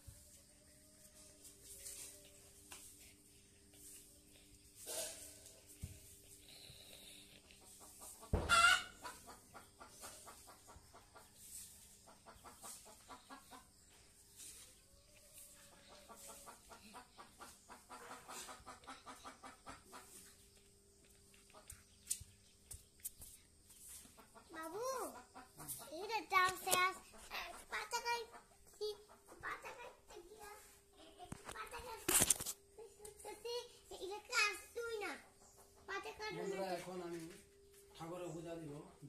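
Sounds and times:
chickens clucking: 0:07.4 - 0:22.8, 0:23.6 - 0:32.0.

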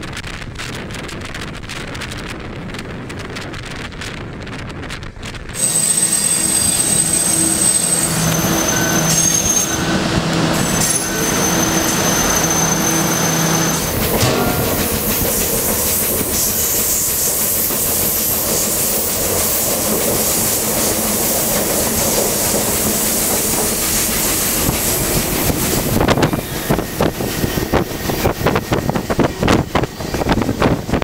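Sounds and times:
train rolling along track: 0:00.0 - 0:31.0
wheels clattering on rails: 0:00.1 - 0:31.0.

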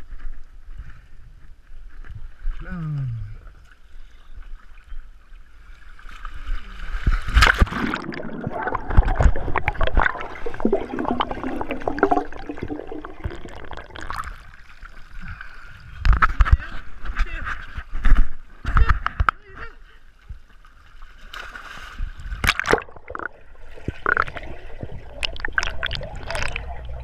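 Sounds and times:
water splashing in pool: 0:05.8 - 0:15.2, 0:20.8 - 0:27.0
underwater gurgling and bubbling: 0:07.4 - 0:14.6, 0:22.3 - 0:27.0.

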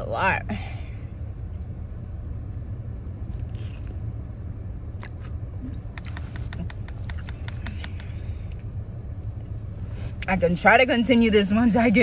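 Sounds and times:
car interior hum: 0:00.0 - 0:12.0
eating clicks and smacks: 0:05.0 - 0:08.2.

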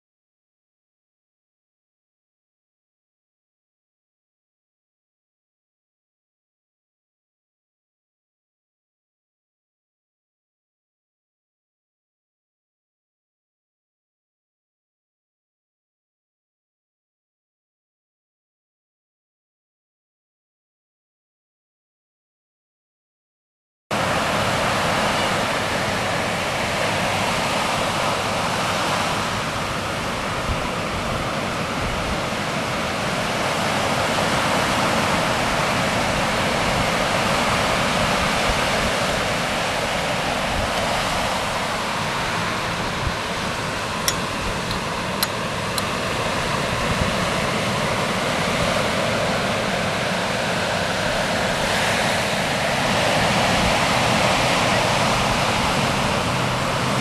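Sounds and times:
ocean surf breaking: 0:24.0 - 0:57.0.

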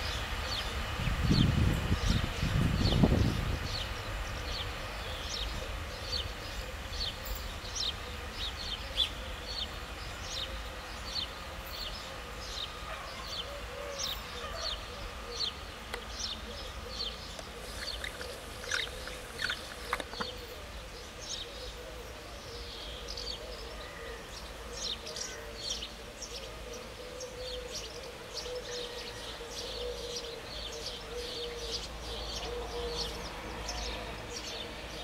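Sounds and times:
low steady rumble: 0:00.0 - 0:22.1
small songbirds chirping: 0:00.0 - 0:35.0.

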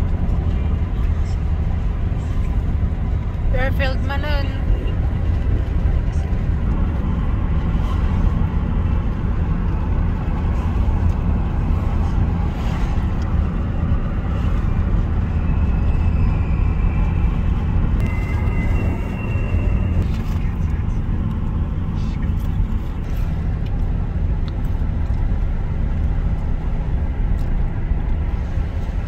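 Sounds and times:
road and engine rumble: 0:00.0 - 0:29.0
faint high-pitched tone: 0:18.0 - 0:20.4.

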